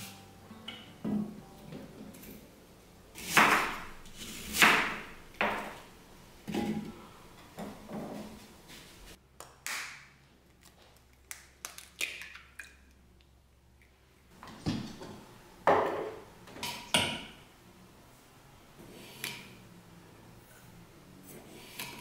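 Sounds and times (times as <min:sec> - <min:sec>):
kitchenware knocking and clinking: 0:04.7 - 0:05.8, 0:14.6 - 0:17.4.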